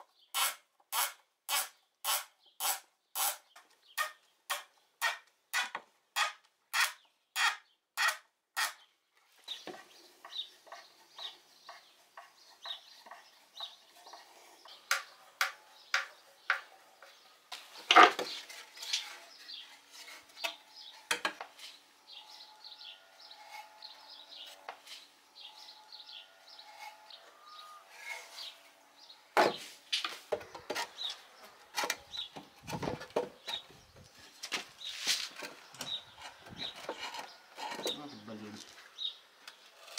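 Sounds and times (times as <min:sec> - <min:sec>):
knocks and clatter of wooden jack: 0:17.8 - 0:19.1, 0:31.8 - 0:33.7.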